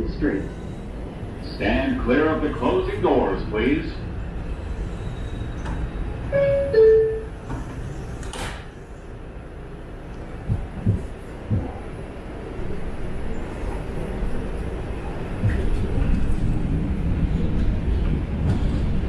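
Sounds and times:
train rumbling: 0.0 - 19.0
two-tone door chime: 6.3 - 7.3
low knocks: 10.4 - 11.8.

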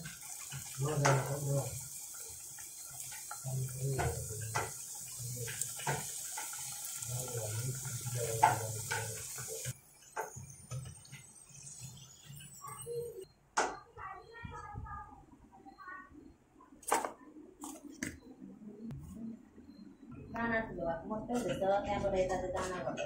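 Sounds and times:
food deep-frying in oil: 0.0 - 13.3.

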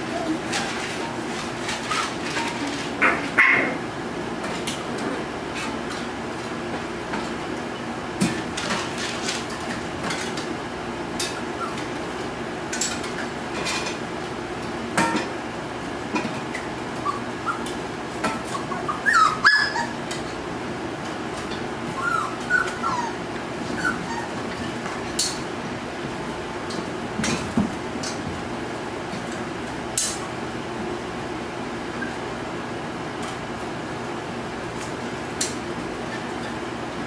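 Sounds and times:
puppies whimpering and yipping: 0.0 - 1.0, 1.6 - 2.3, 11.4 - 12.0, 17.0 - 20.1, 21.8 - 24.8.

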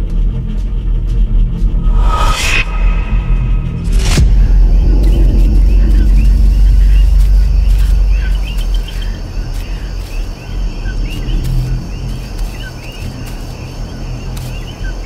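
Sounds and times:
deep low rumble drone: 0.0 - 15.0
insects trilling: 4.0 - 15.0.

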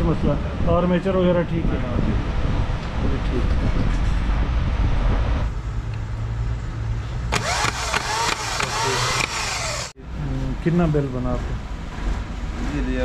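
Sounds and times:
starter motor whine: 7.3 - 10.0.

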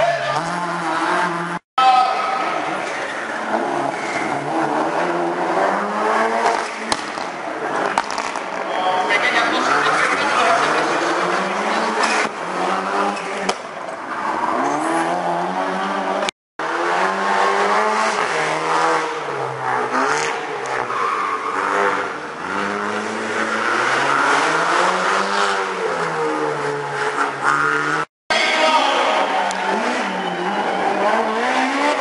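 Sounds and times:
rally car engines revving: 0.0 - 1.6, 2.2 - 32.0.

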